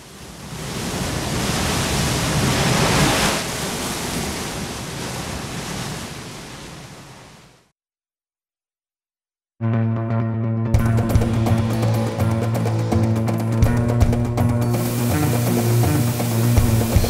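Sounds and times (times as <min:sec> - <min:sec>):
sea surge rushing: 0:00.0 - 0:07.7, 0:14.7 - 0:17.0.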